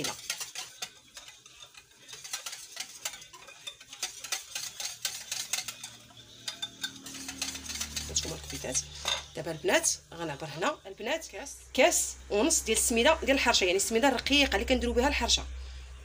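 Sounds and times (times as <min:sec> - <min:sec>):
utensil scraping glass bowl: 0:00.0 - 0:09.6.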